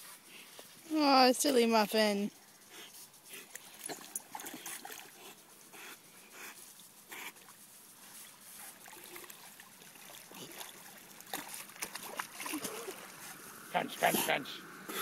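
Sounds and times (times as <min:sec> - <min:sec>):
water sloshing and splashing: 0:03.1 - 0:05.7, 0:06.6 - 0:13.7.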